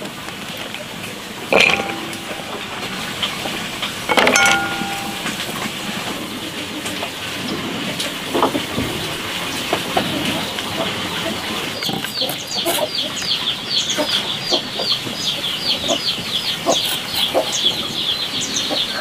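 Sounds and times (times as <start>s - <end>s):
slices clattering into glass bowl: 1.5s - 3.0s, 4.1s - 5.7s.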